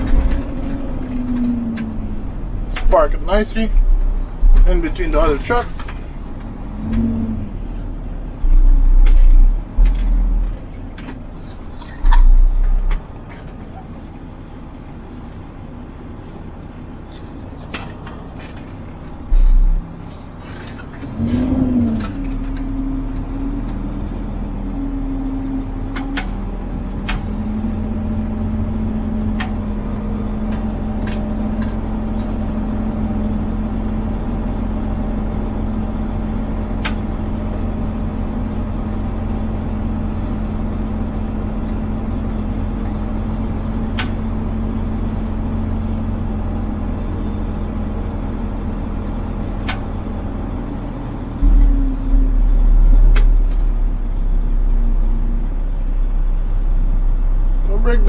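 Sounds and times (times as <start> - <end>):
diesel truck engine running: 0.0 - 58.0
heavy low thumps: 1.5 - 10.5, 19.2 - 19.9.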